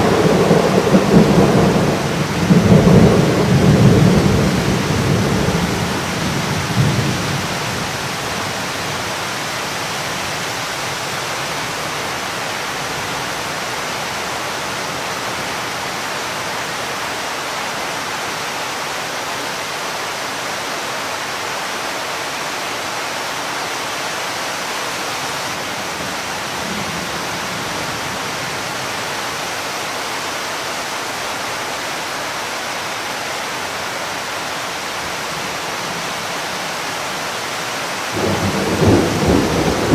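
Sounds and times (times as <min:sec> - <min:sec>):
low thunder rumble: 0:00.0 - 0:07.9, 0:38.2 - 0:39.9
heavy rain falling: 0:00.0 - 0:39.9.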